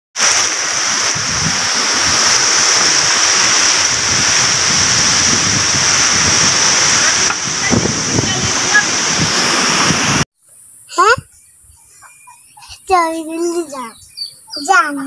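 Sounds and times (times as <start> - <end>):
heavy rain pouring: 0.2 - 10.2.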